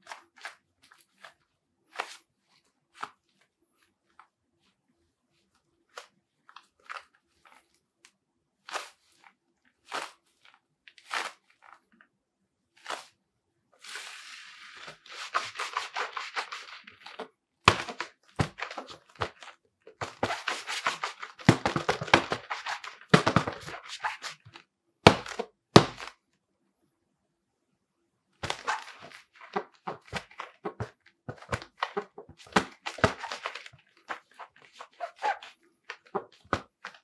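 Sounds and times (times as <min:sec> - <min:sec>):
gloves rubbing and crackling: 0:00.0 - 0:12.1, 0:12.7 - 0:13.2, 0:13.8 - 0:26.2, 0:28.4 - 0:37.0
gloves tapping and thunking: 0:14.8 - 0:26.2, 0:28.4 - 0:37.0.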